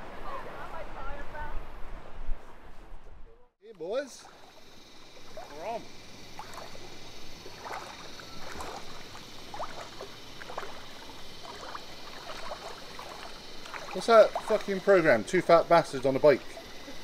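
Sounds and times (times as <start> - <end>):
steady background hiss: 3.6 - 17.0
faint short calls: 3.8 - 15.3
water sloshing and splashing: 3.8 - 17.0.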